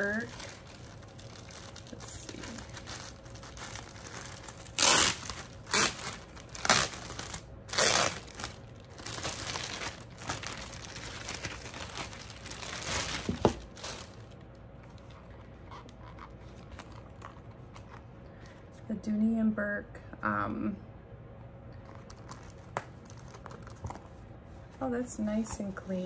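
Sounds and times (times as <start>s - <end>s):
plastic bag crinkling and rustling: 0.0s - 18.1s
faint handling noise: 8.3s - 18.9s.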